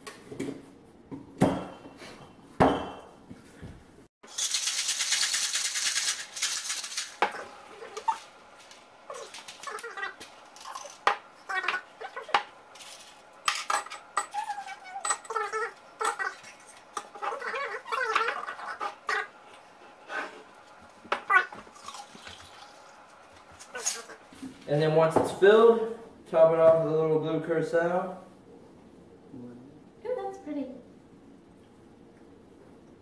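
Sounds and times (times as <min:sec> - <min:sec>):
ice rattling in shaker: 0:04.3 - 0:07.3.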